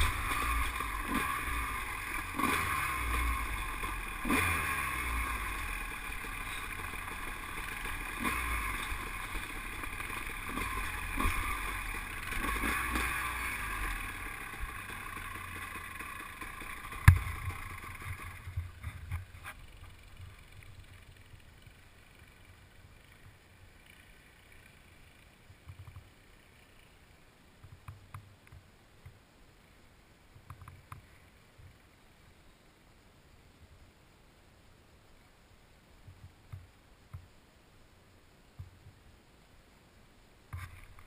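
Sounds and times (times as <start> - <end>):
quad engine running: 0.0 - 27.0
small clicks: 25.5 - 26.1, 27.6 - 29.2, 30.4 - 31.8.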